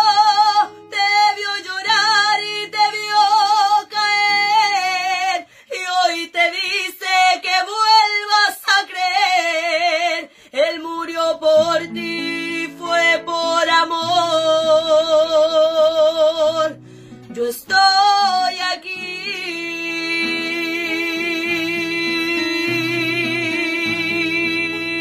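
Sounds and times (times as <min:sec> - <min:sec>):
strummed classical guitar: 0:00.0 - 0:25.0
woman singing with vibrato: 0:00.0 - 0:25.0.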